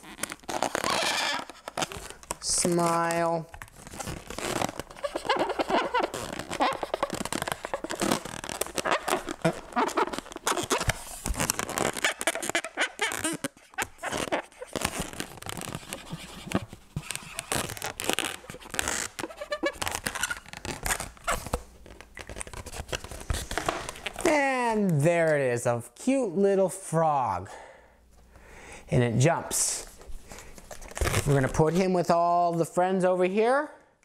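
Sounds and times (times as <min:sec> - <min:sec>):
balloon rubbing and squeaking: 0:00.0 - 0:24.5, 0:30.7 - 0:31.8.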